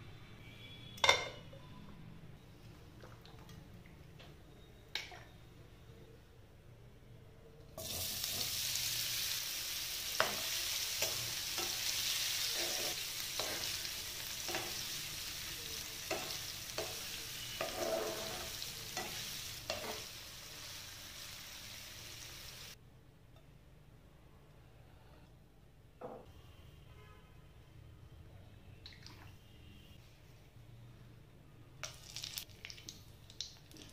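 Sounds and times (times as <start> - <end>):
cheese sizzling in oil: 7.8 - 22.8
spatula scraping a pan: 10.2 - 15.0, 16.0 - 20.1.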